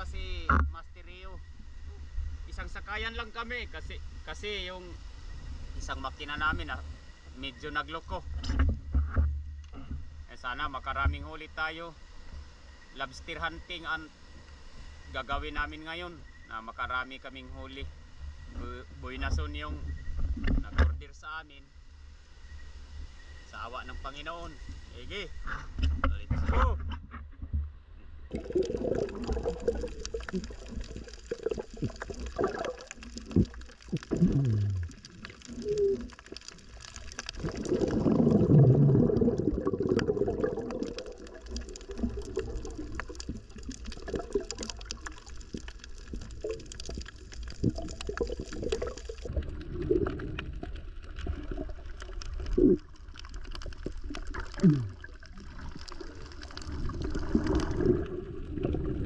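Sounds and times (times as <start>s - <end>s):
crackling clicks: 28.3s - 58.8s
gurgling air bubbles underwater: 28.3s - 59.0s.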